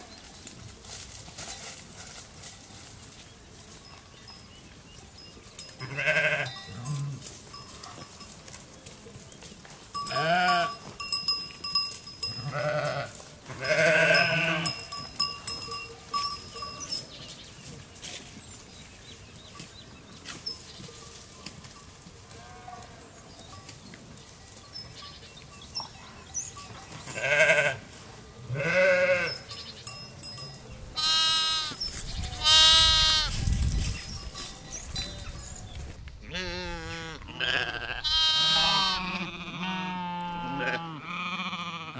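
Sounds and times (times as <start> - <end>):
lamb bleating: 5.8 - 7.1, 10.1 - 10.7, 12.4 - 14.8, 27.2 - 27.8, 28.5 - 29.3, 31.0 - 33.4, 36.3 - 41.9
sheep bleating: 5.8 - 7.2, 10.1 - 10.7, 12.4 - 14.8, 27.1 - 27.8, 28.5 - 29.4, 31.0 - 33.3, 36.3 - 41.9.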